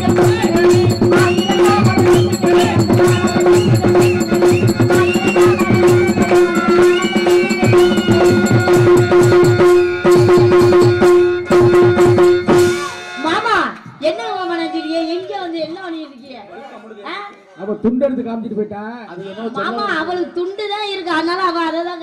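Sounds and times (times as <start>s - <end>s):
gliding melody line: 0.0s - 13.4s
hand drums beating fast rhythm: 0.0s - 13.6s.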